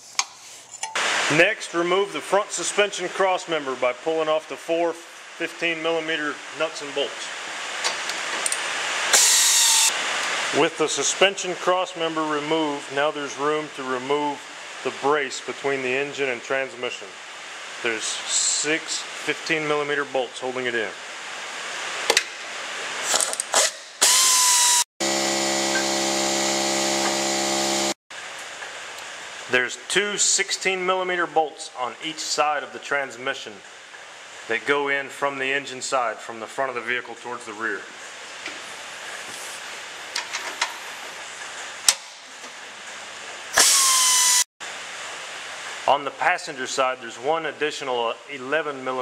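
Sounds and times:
pneumatic ratchet with air hiss: 9.1 - 9.9, 23.0 - 24.8, 43.5 - 44.4
power tool whirring: 9.1 - 9.9, 23.1 - 28.0, 43.5 - 44.5.

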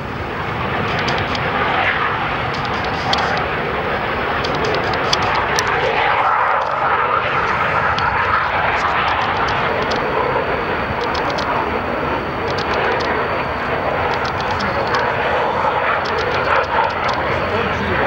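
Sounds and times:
jet engine noise: 0.0 - 18.0.

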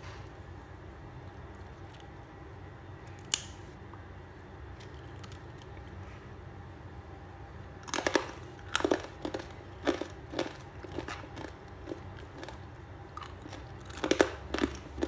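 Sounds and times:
crisp snack crunching: 7.8 - 15.0.

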